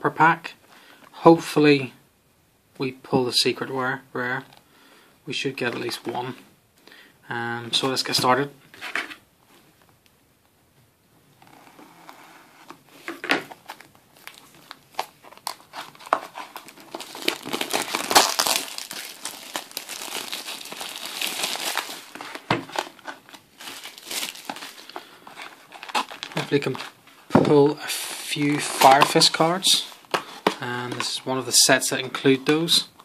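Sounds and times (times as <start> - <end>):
plastic wrap crinkling: 11.4 - 27.4.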